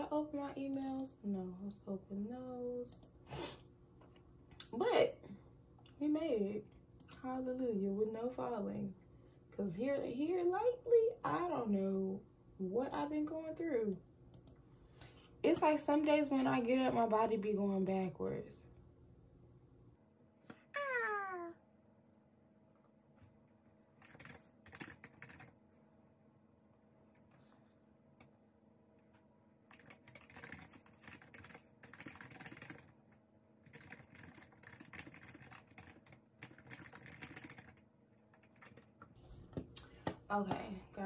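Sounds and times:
keyboard typing: 24.0 - 25.6, 29.6 - 33.0, 33.6 - 39.1.

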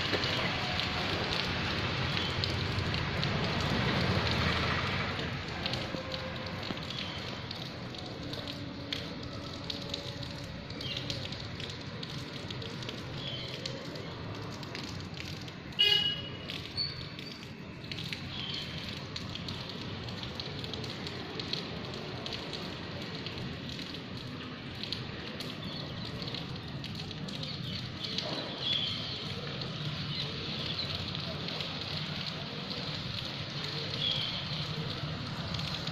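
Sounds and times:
light rain pattering: 0.0 - 35.9.

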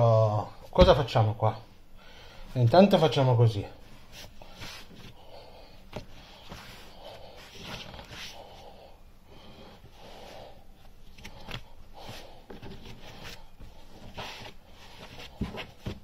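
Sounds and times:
dull thumps of dough: 0.7 - 1.2
hands rubbing bread dough: 4.0 - 5.2, 10.2 - 16.0.

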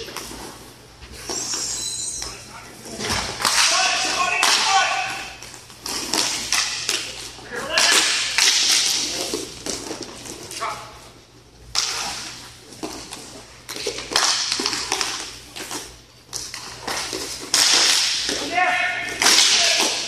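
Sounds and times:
hockey sticks and puck clacking: 3.0 - 10.9, 11.7 - 20.0
players shouting: 3.5 - 5.4, 18.4 - 20.0.

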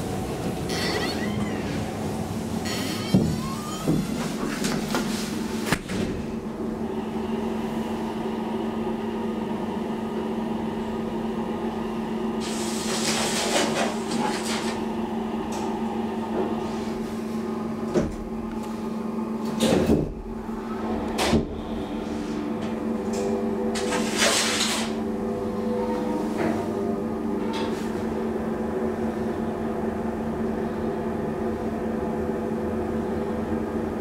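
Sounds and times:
elevator low hum: 0.0 - 34.0
elevator car clunks: 2.7 - 6.3.

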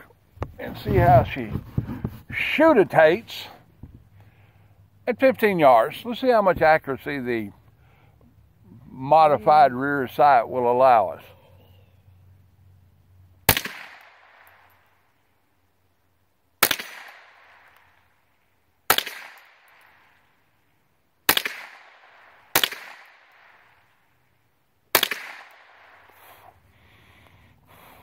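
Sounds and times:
rifle shots echoing: 13.5 - 14.7, 16.6 - 17.8, 18.9 - 20.2, 21.2 - 24.0, 24.9 - 26.1.

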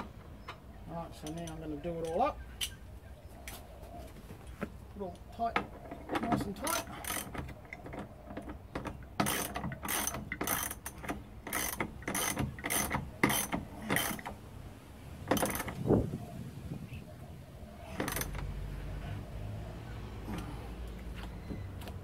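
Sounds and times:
ratchet wrench clicking: 9.2 - 14.3.

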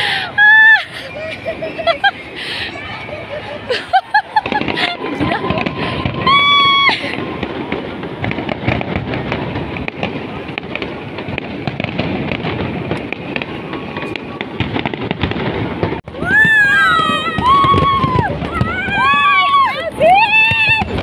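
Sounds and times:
fireworks crackling: 0.0 - 21.0
person whooping: 0.2 - 1.3, 4.8 - 7.1, 16.2 - 20.9.

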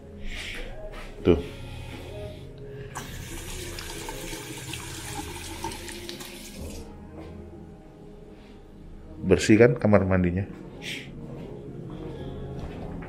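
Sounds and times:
faucet running into metal sink: 3.0 - 6.9.

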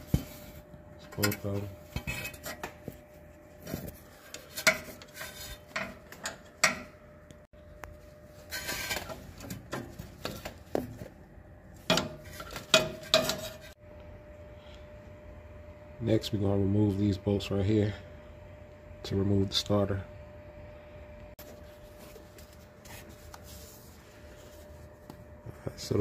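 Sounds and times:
wrench scraping metal: 1.2 - 2.8, 4.1 - 6.9, 11.9 - 13.8.

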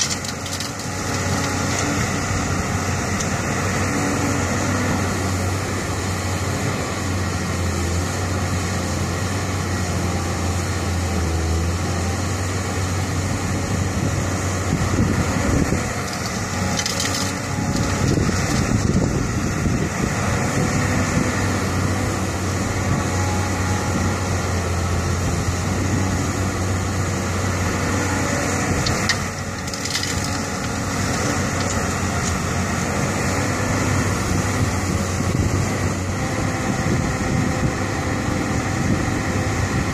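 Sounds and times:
soil and stones rattling into truck: 0.0 - 2.0, 15.8 - 19.0, 28.7 - 32.6
excavator diesel engine running: 0.0 - 39.9.

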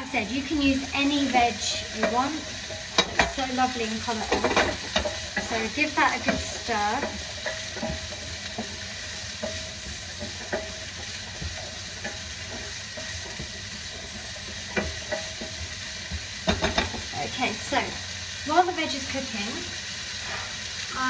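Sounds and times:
vegetables sizzling in a frying pan: 0.0 - 21.0
spoon scraping and knocking pan: 0.2 - 18.0.

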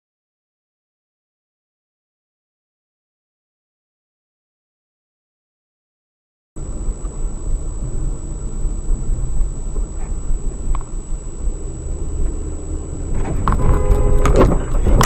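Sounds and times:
faint high whine: 6.6 - 15.0
road and engine rumble in car: 6.6 - 15.0.

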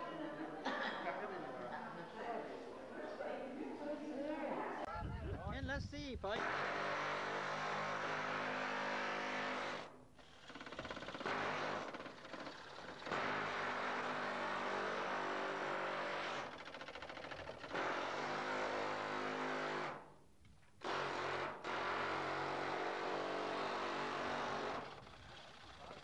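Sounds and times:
air chisel rattling on sheet metal: 10.4 - 15.1, 15.9 - 19.3.

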